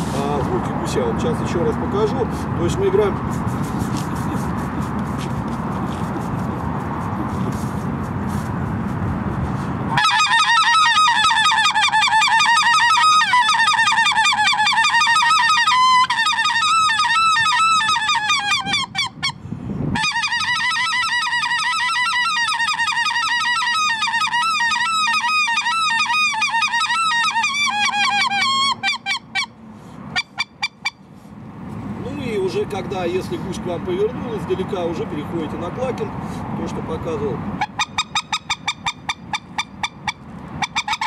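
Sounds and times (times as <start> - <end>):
goose call yodelling honks: 9.9 - 19.4, 20.0 - 29.5, 37.6 - 41.0.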